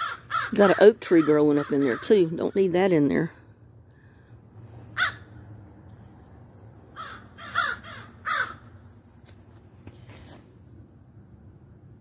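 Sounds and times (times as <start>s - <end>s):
crow cawing: 0.0s - 2.3s, 5.0s - 5.3s, 7.0s - 8.7s.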